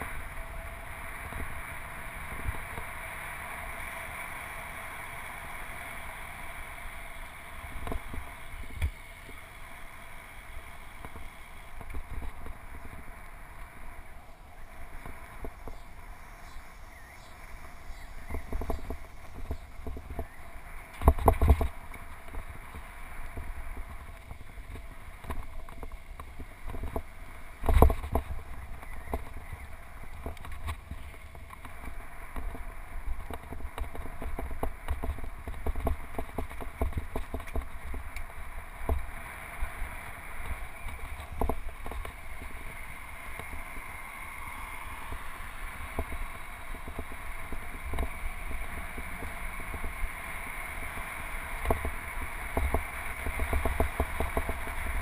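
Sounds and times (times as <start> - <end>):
bike knocking and rattling: 0.0 - 14.1, 14.8 - 16.6, 17.9 - 55.0
bike tyres rumbling on pavement: 0.0 - 55.0
wind on microphone: 11.0 - 55.0.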